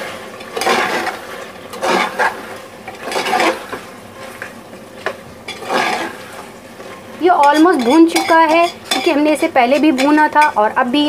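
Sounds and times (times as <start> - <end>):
low sizzle: 0.0 - 11.0
metal spoon scraping a pot: 0.6 - 3.8, 5.5 - 10.6.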